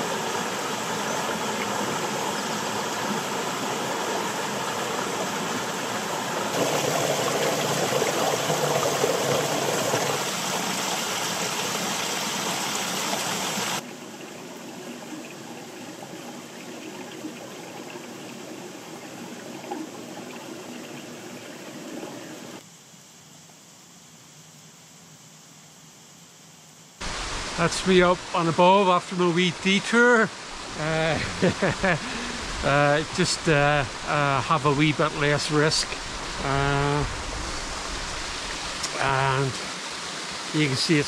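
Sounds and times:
stream water flowing: 0.0 - 22.6, 27.0 - 41.0
waterfall pouring into pool: 0.0 - 22.6, 27.0 - 41.0.

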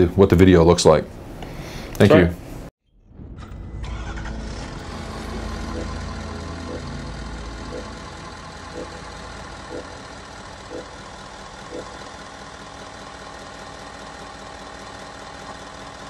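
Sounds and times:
deep rumble: 2.8 - 10.8
vehicle engine idling: 3.8 - 16.0.

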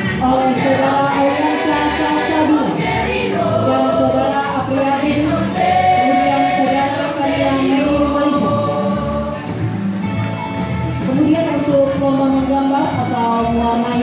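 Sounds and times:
choir singing long notes: 0.3 - 9.6.

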